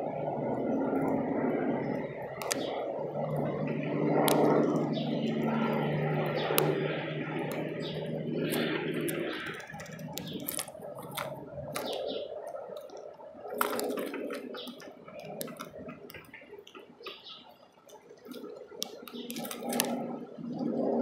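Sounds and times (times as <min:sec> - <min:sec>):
birds pecking on feeder: 0:00.0 - 0:20.7.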